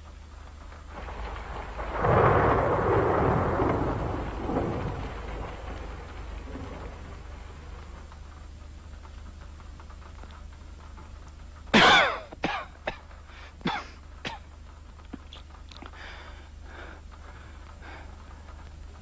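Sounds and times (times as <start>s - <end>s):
low hum: 0.0s - 19.0s
man coughing: 11.8s - 13.0s, 13.6s - 14.4s.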